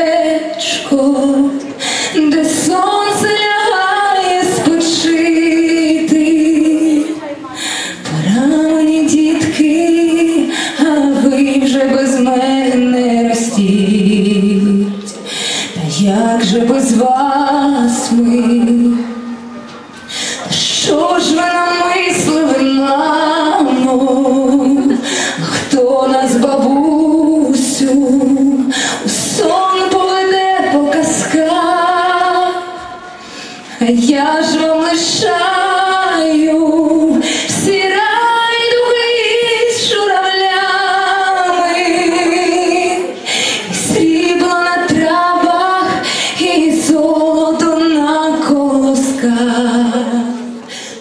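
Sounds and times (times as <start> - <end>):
girls singing: 0.0 - 51.0.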